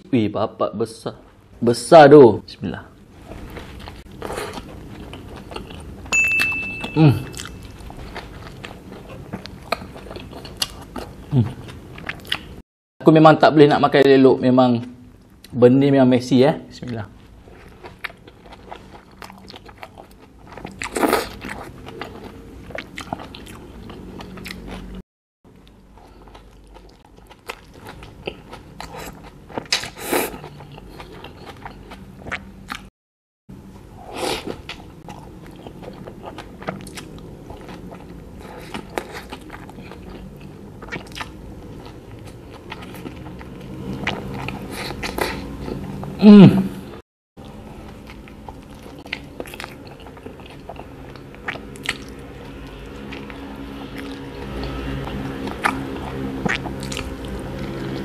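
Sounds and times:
biting and chewing food: 16.9 - 32.9, 34.4 - 46.1, 47.4 - 58.0.

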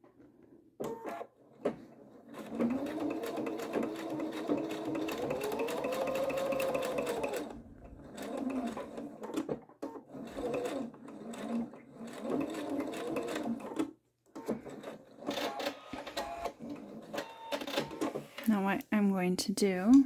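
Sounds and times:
sewing machine motor hum: 0.8 - 18.3
sewing machine clicks: 2.4 - 18.2.

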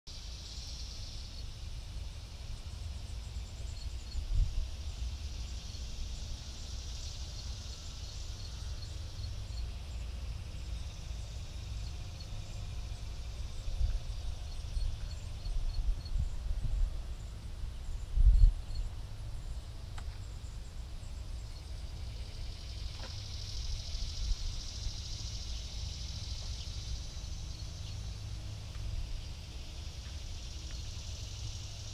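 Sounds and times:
wind buffeting microphone: 13.3 - 19.5.

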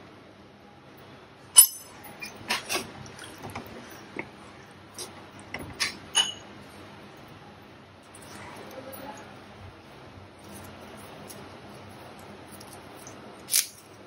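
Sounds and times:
ladle clinking against pot: 5.7 - 6.5.

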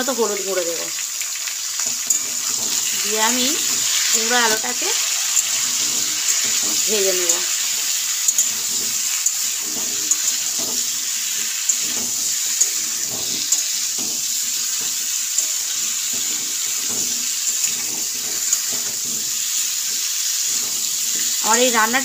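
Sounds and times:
vegetables sizzling in oil: 0.0 - 22.0
spatula clicking against pan: 1.2 - 2.9, 8.2 - 8.6, 11.5 - 19.0
metal spatula scraping pan: 1.8 - 21.8.

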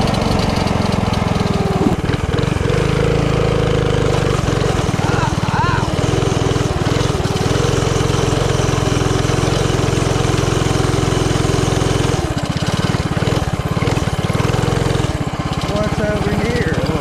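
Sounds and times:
mini bike engine running: 0.0 - 17.0.

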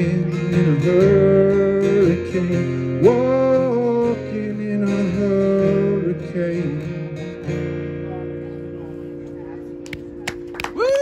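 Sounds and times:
man singing long notes: 0.0 - 7.2
acoustic guitar strumming: 0.0 - 11.0.

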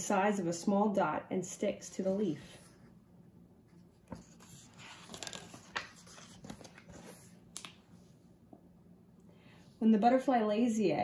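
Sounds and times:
pages rustling: 3.7 - 7.8
small clicks of pages: 7.5 - 7.8.

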